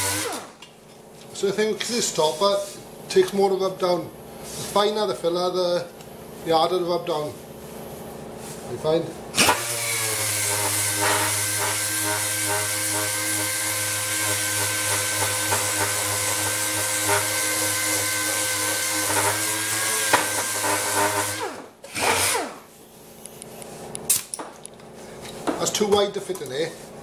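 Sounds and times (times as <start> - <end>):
disc sander whining: 9.4 - 22.4.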